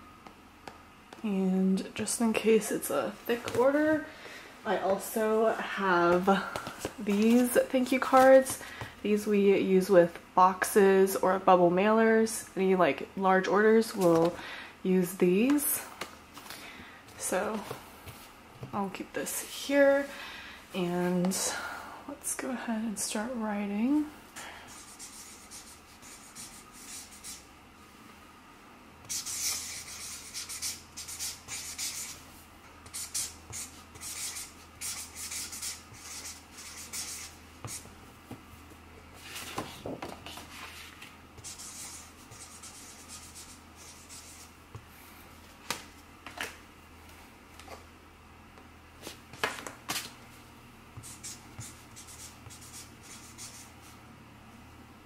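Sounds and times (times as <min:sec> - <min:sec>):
marker scratching on card: 0:24.7 - 0:27.4, 0:29.1 - 0:32.2, 0:32.8 - 0:37.9, 0:41.4 - 0:44.5, 0:51.0 - 0:53.7.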